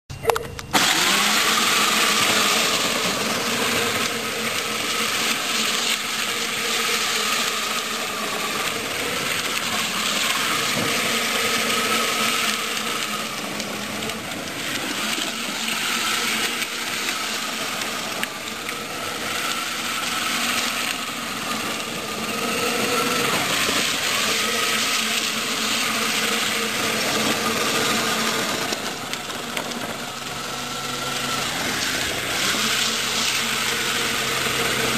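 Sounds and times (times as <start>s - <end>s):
electric motors whining: 0.1s - 34.9s
plastic wheels rolling on asphalt: 0.6s - 34.9s.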